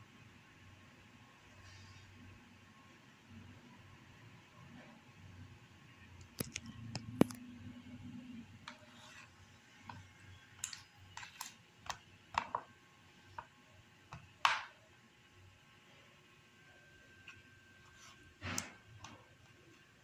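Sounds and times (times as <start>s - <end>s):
stones tapping on plastic plate: 10.6s - 12.7s.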